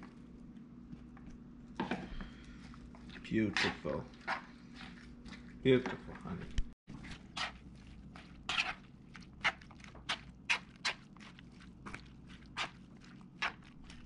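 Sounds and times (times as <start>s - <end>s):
spoon scraping plastic bowl: 6.9s - 11.1s.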